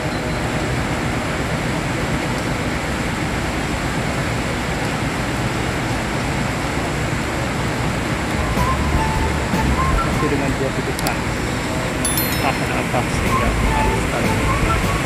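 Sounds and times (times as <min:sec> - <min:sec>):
rain hiss: 0:02.5 - 0:11.9, 0:12.6 - 0:15.0
diesel bus engines idling: 0:12.6 - 0:15.0.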